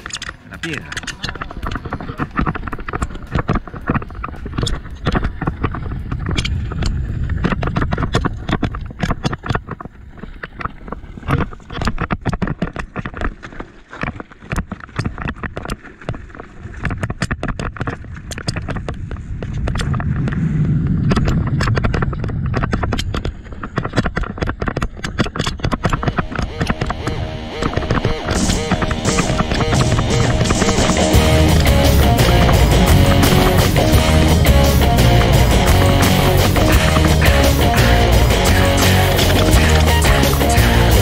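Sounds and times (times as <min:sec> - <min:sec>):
bike rattling and clattering: 0:00.0 - 0:41.0
low rumble: 0:04.0 - 0:09.7, 0:18.1 - 0:23.8, 0:26.0 - 0:41.0.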